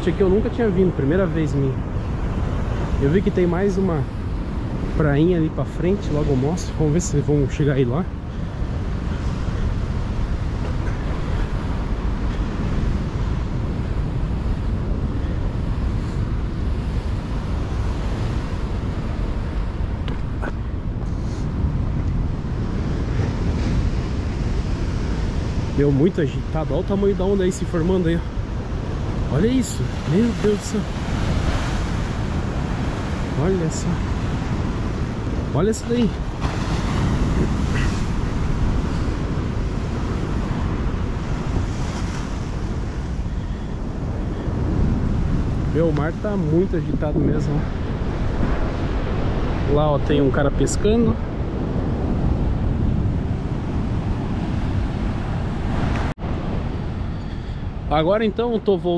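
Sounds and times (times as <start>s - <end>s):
wind buffeting microphone: 0.0s - 58.7s
surf breaking on shore: 0.0s - 58.9s
surf breaking on rocks: 21.7s - 51.1s.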